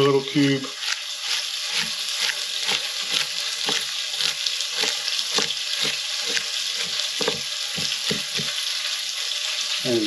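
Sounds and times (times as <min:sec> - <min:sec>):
meat sizzling in frying pan: 0:00.0 - 0:10.0
knife chopping on wooden board: 0:00.8 - 0:08.6.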